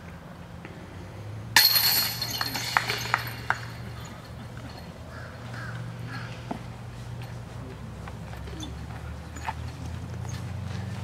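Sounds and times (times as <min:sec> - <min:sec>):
disc crashing into chains: 0:01.6 - 0:04.8
chains jangling: 0:01.6 - 0:05.0.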